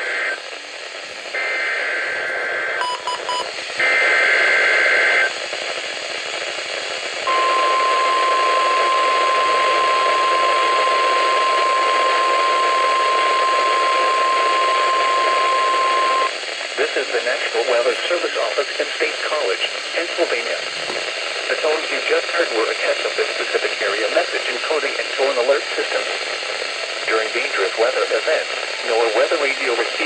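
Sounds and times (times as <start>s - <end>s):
radio hiss: 0.0s - 30.0s
short beeps: 7.3s - 16.3s.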